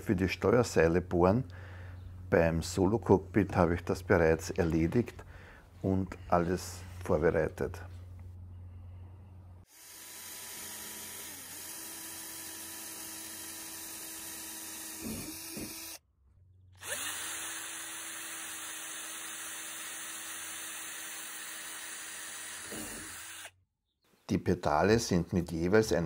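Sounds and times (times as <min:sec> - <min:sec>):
cordless drill boring through plastic: 0:09.7 - 0:16.0, 0:16.8 - 0:23.6.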